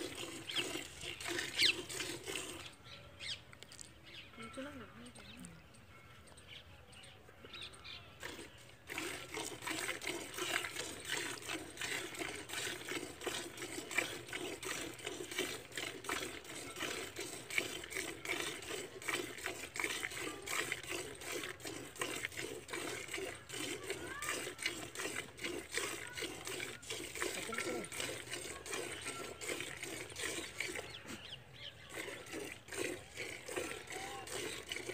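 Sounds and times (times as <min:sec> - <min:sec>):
milk squirting into steel bucket: 0:00.0 - 0:02.8, 0:07.6 - 0:34.9.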